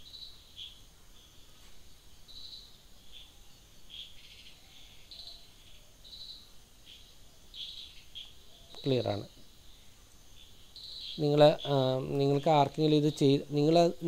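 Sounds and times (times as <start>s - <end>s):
faint high animal chirps: 2.3s - 9.3s.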